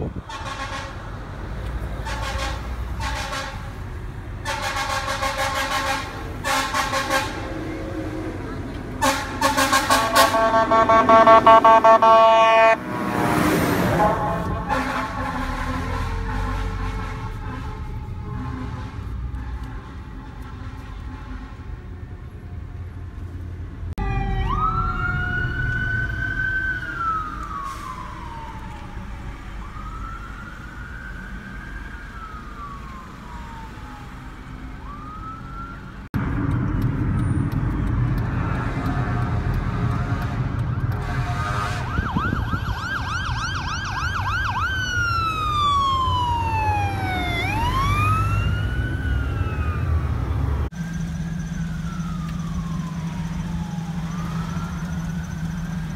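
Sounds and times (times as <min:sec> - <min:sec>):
low rumble of traffic: 0:00.0 - 0:55.9
fire engine siren wailing: 0:04.4 - 0:23.3, 0:24.0 - 0:55.9
siren fast yelp: 0:09.9 - 0:12.8, 0:41.8 - 0:50.1.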